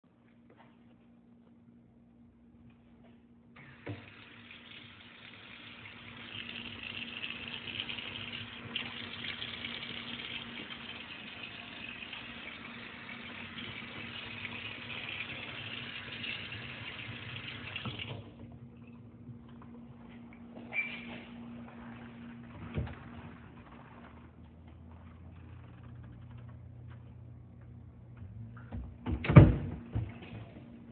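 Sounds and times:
faucet water into metal sink: 3.6 - 18.3.

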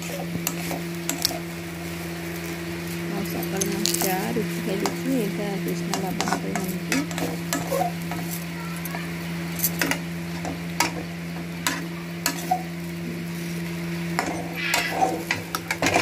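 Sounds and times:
light sizzle: 0.0 - 16.0
steady low hum: 0.0 - 16.0
spatula scraping metal pan: 6.1 - 8.4, 11.7 - 12.7.

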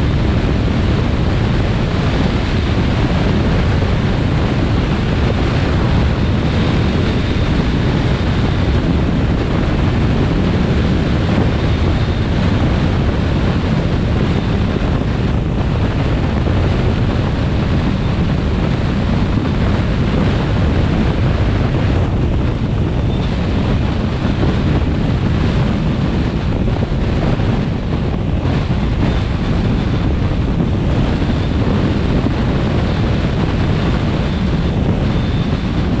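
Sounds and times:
vehicle road and tyre noise: 0.0 - 36.0
wind buffeting microphone: 0.0 - 36.0.

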